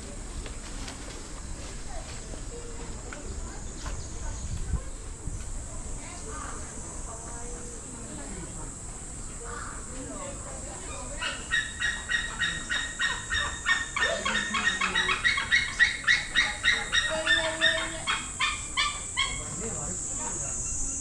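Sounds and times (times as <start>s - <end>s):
animal calling rapidly: 10.9s - 19.6s.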